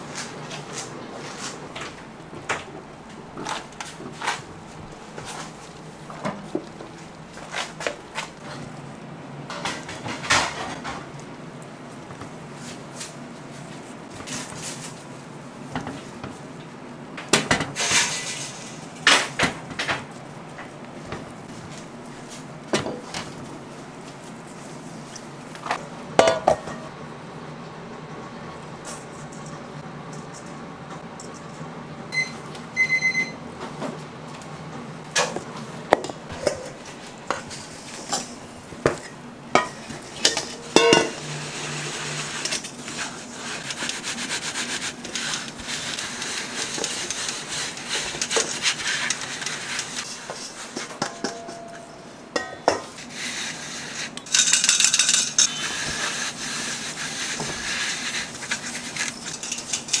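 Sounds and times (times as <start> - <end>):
metal cup clinking bowl: 39.6 - 41.2, 51.0 - 52.9
hands rubbing powder: 41.6 - 51.0, 55.4 - 59.4.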